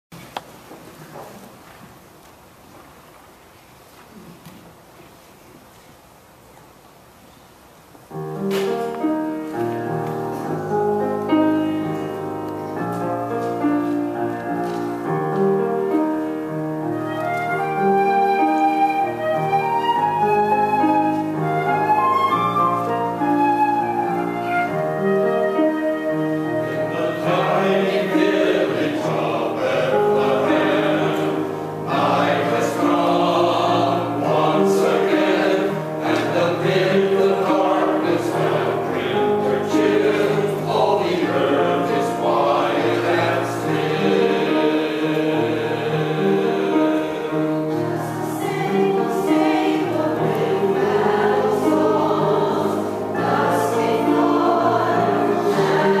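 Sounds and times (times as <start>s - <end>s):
choir singing: 9.5s - 56.0s
flute melody: 15.5s - 40.5s.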